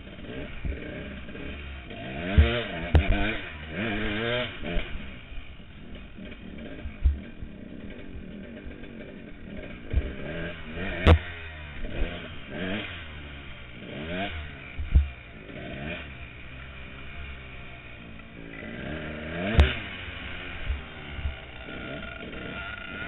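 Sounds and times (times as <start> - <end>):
dirt bike engine revving: 0.0 - 23.0
low thump: 14.8 - 15.1.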